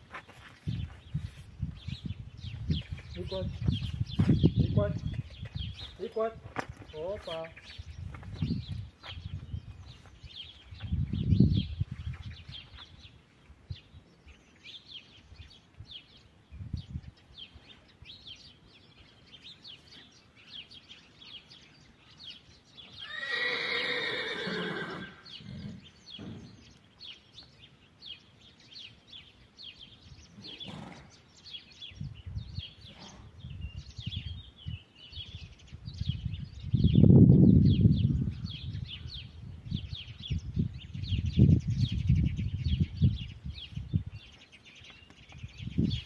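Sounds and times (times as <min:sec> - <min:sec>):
small birds chirping: 0:00.0 - 0:46.0
horse whinnying: 0:23.0 - 0:25.8, 0:30.4 - 0:31.1.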